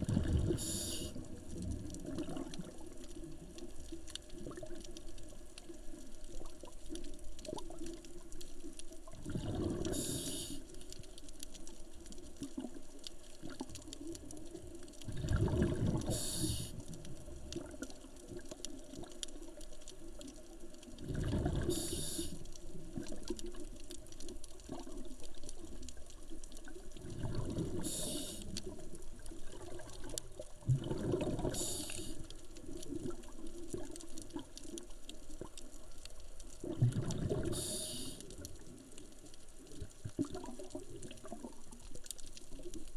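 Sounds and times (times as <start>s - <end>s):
bubbling exhalation underwater: 0.0s - 2.8s, 9.1s - 10.2s, 15.0s - 17.8s, 21.0s - 22.2s, 27.0s - 28.3s, 29.5s - 32.1s, 36.6s - 38.1s
regulator hiss: 0.6s - 1.2s, 9.9s - 10.7s, 16.1s - 16.8s, 21.7s - 22.4s, 27.8s - 28.5s, 31.5s - 32.2s, 37.5s - 38.2s.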